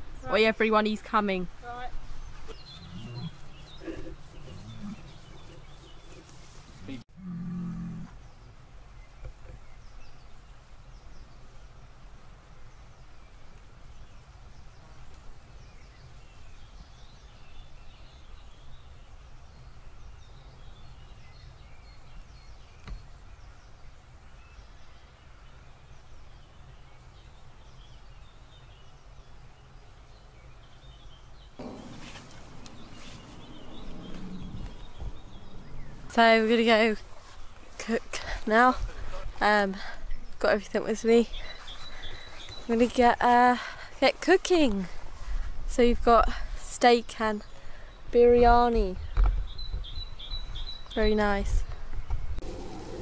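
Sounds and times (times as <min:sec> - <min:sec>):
small birds chirping faintly: 0:00.0 - 0:53.0
loud noise: 0:31.6 - 0:36.0
wind rumble on microphone: 0:31.6 - 0:37.6.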